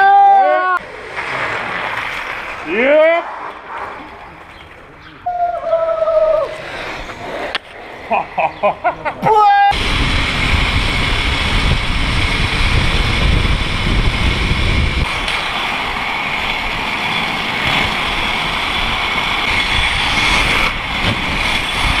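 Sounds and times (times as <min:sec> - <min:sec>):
skate wheels rolling on asphalt: 0:00.8 - 0:08.8, 0:09.7 - 0:22.0
wind buffeting microphone: 0:09.7 - 0:22.0.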